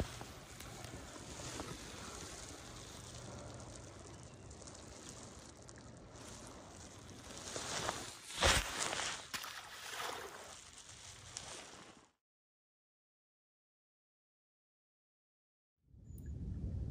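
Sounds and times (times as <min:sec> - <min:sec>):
river water flowing: 0:04.5 - 0:10.6.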